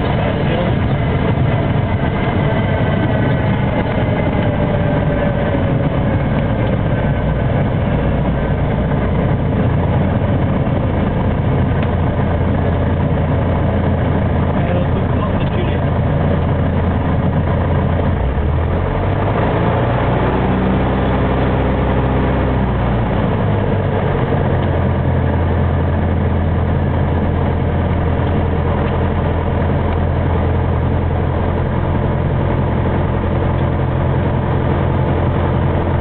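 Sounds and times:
aircraft engines running: 0.0s - 36.0s.

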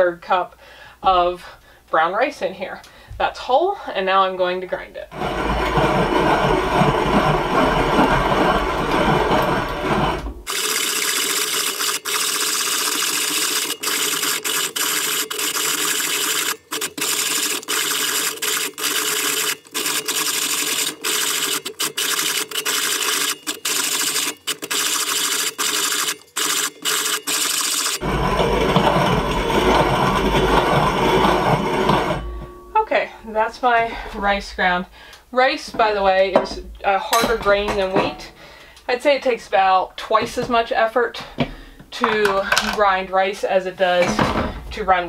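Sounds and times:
hand mill grinding grain: 5.1s - 32.4s.

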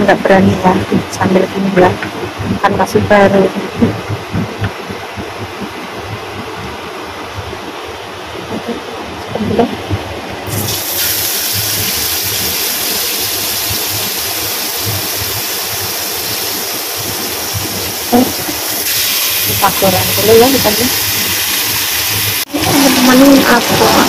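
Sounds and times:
range hood fan running: 0.0s - 24.0s
fish sizzling in hot oil: 10.5s - 24.0s.

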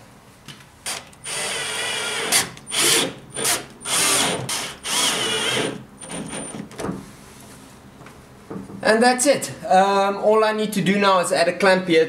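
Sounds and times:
cordless drill driving screws: 0.9s - 6.6s.

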